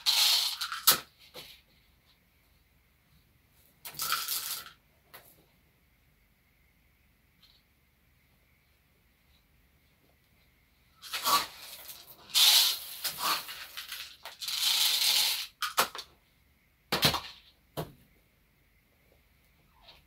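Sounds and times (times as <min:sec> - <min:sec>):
corn kernels rattling into pouch: 0:11.0 - 0:15.8.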